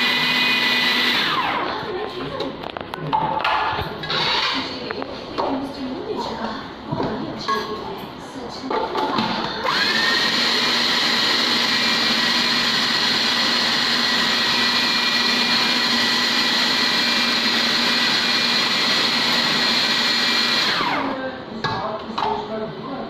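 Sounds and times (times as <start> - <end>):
food processor motor whining: 0.0 - 1.9, 4.0 - 4.7, 9.6 - 21.2.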